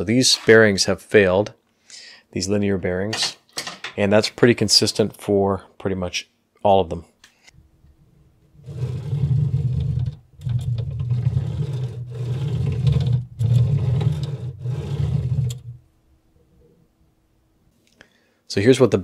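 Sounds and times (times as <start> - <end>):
rough grinding of carriage on rods: 8.6 - 15.8.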